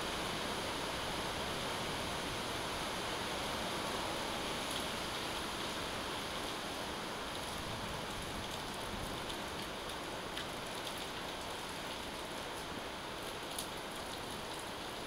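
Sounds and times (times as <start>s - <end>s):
steady rain hiss: 0.0s - 15.0s
sharp raindrop ticks: 12.6s - 14.6s.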